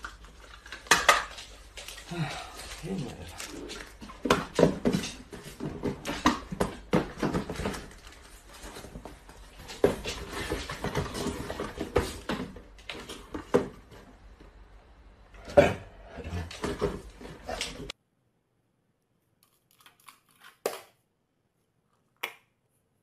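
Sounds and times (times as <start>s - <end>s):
cardboard boxes rustling and knocking: 3.8s - 14.2s.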